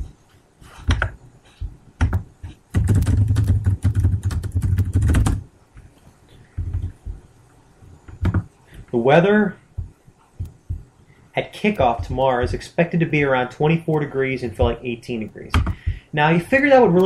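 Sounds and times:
computer keyboard typing: 2.0 - 5.4, 8.1 - 8.5.

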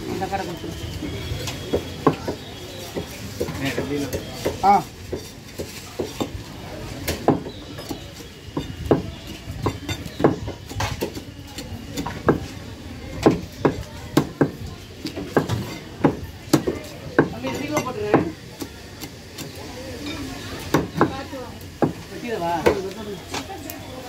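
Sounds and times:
knife chopping fish on wood block: 13.2 - 17.4.

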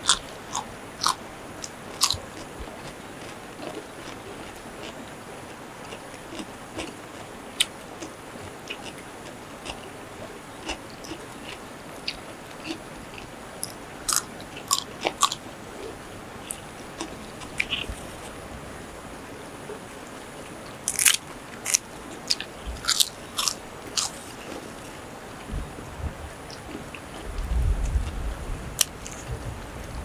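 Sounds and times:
people chewing: 0.0 - 9.9, 10.6 - 18.4, 20.6 - 25.0, 28.8 - 29.3
crunchy bites: 1.9 - 2.5, 13.6 - 15.4, 20.9 - 24.6.

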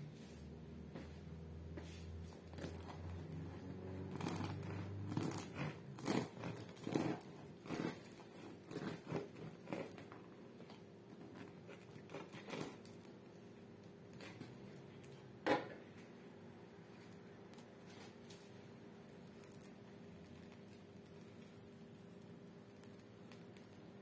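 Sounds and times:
bread knife sawing crusty loaf: 2.5 - 10.2.

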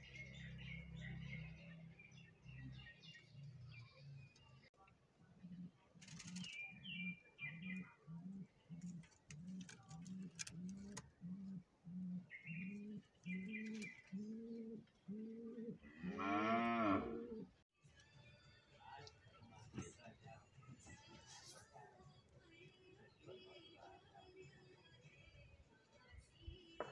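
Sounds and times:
pigeons cooing: 5.3 - 17.6.

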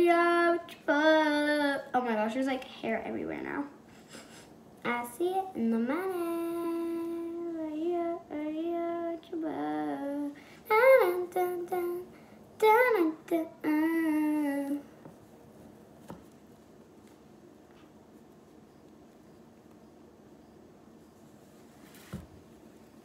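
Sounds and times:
girl singing: 0.0 - 3.8, 4.8 - 15.1.

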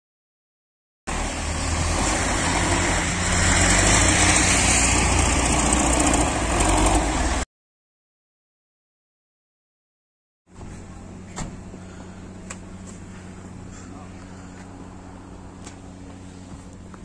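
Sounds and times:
tractor diesel engine: 1.1 - 7.4.

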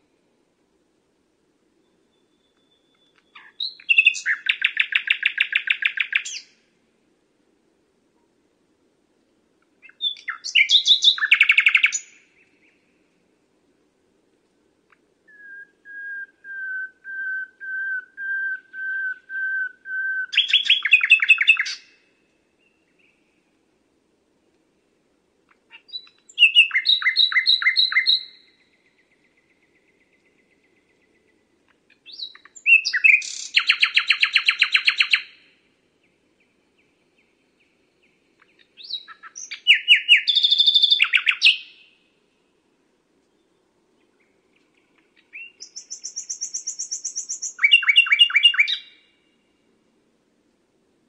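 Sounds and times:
nightingale singing: 1.8 - 6.6, 9.8 - 13.1, 14.9 - 23.5, 25.5 - 42.6, 43.2 - 49.7.

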